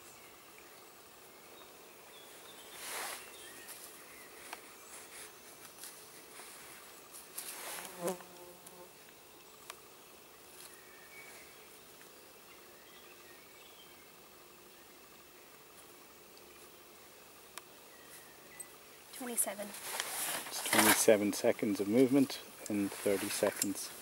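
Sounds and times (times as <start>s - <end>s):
insect buzzing: 0.0s - 24.0s
rustling of a sack: 2.7s - 8.2s, 19.3s - 21.1s.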